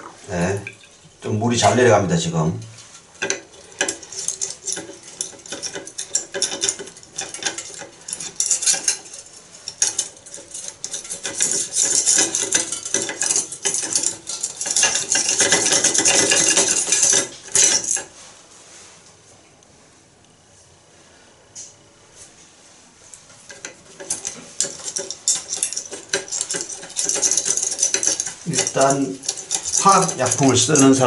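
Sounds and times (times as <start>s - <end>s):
wire scraping metal drain: 2.8s - 18.1s, 23.4s - 31.0s.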